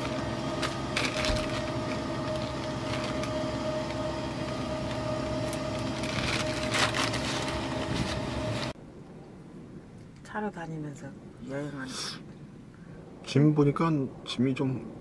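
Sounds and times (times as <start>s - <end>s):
mechanical hum: 0.0s - 10.0s.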